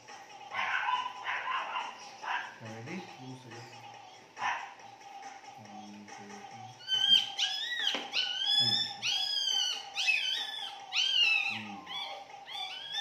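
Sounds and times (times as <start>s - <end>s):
puppy crying high-pitched squeals: 6.8s - 13.0s.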